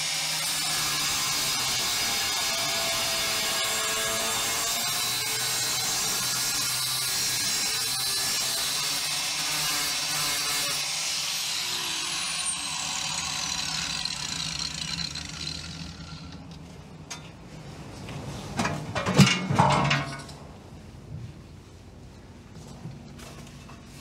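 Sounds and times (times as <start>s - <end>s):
angle grinder grinding metal: 0.0s - 16.5s.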